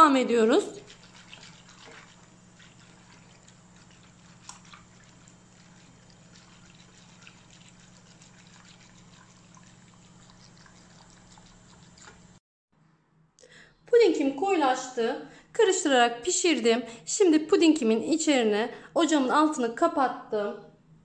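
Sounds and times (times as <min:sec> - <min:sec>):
low steady hum: 0:00.0 - 0:12.4
whisk swishing pudding mixture: 0:00.4 - 0:12.4.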